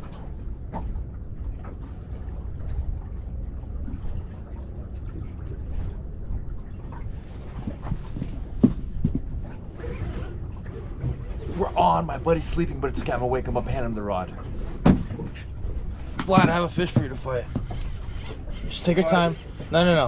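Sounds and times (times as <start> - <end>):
water lapping against hull: 0.0 - 20.0
wind rumbling on microphone: 0.0 - 20.0
knocks: 14.8 - 15.3, 16.2 - 17.8.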